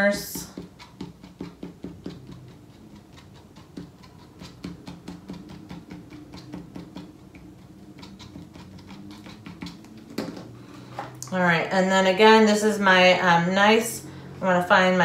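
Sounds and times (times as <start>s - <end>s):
glue tip tapping on cardstock: 0.4s - 9.8s.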